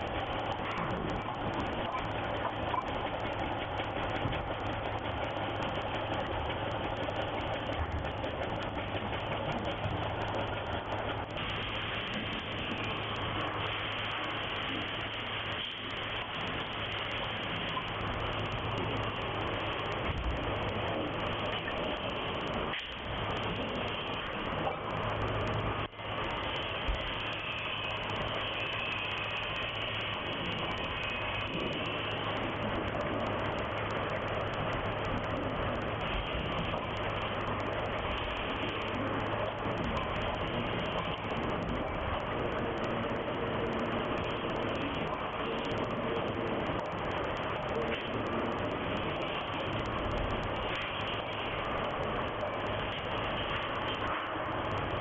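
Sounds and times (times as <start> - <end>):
factory machinery running: 0.0 - 55.0
low hum: 0.0 - 55.0.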